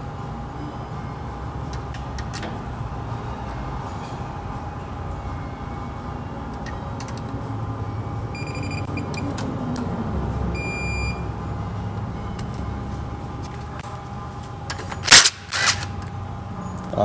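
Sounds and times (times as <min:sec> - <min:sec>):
steady low hum: 0:00.0 - 0:17.0
short electronic beeps: 0:08.3 - 0:09.3, 0:10.5 - 0:11.3.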